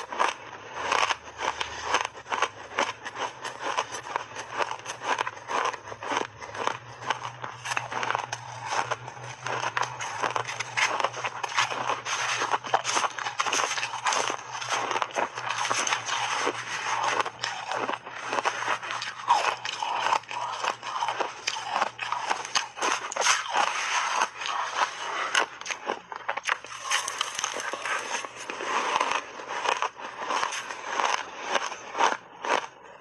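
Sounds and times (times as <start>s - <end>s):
chewing crunchy ice: 0.0s - 33.0s
metal spoon scraping ice: 9.5s - 25.8s, 26.6s - 31.3s.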